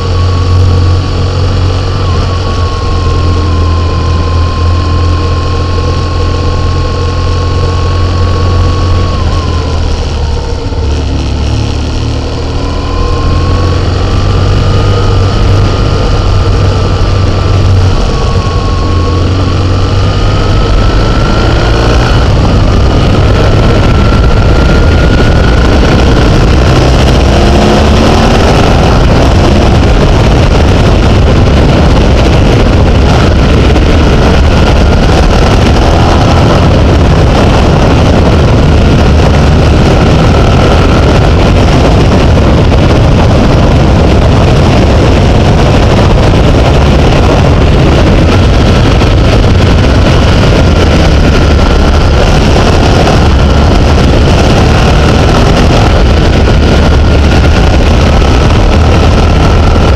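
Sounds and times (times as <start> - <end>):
rushing noise: 0.0 - 59.9
vehicle engine running: 0.0 - 59.9.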